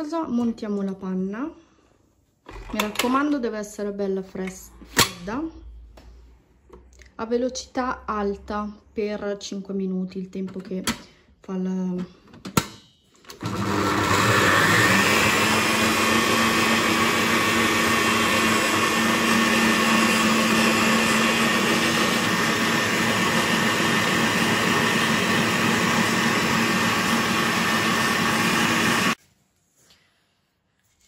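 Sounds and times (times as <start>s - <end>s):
stand mixer motor whining: 13.3s - 29.2s.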